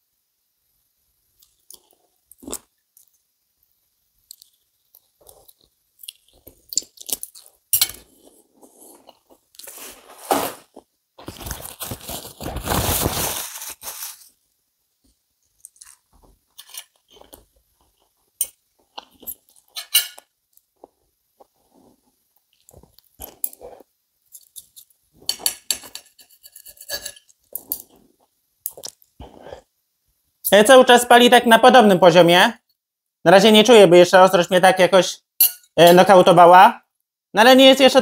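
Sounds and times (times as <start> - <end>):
knife and fork on ceramic plate: 7.4 - 8.1, 16.6 - 17.4, 18.4 - 20.3, 24.3 - 28.0
paper tissue rustling: 9.6 - 14.4
man chewing sausage: 20.5 - 25.0.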